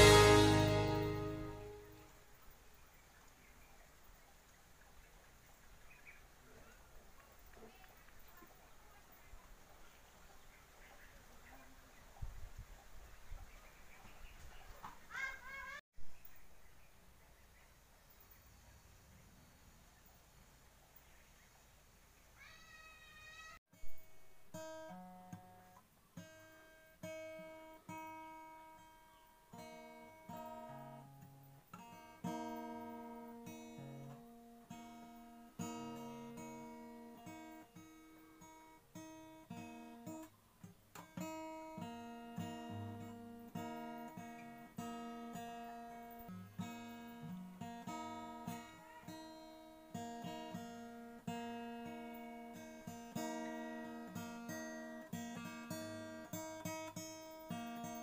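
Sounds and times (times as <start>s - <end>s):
acoustic guitar plucked notes: 0.0s - 2.1s, 41.0s - 58.0s.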